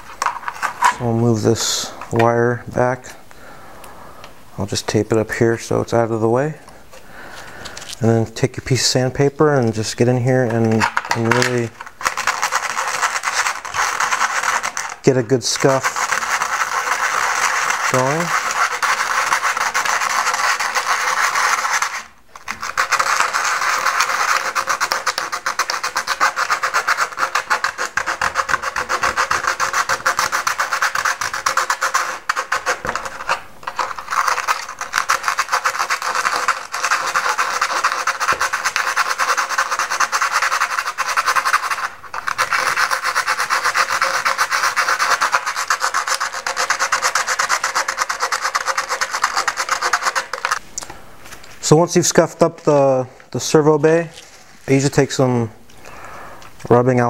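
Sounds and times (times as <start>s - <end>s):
sandpaper rubbing by hand: 10.5s - 50.6s.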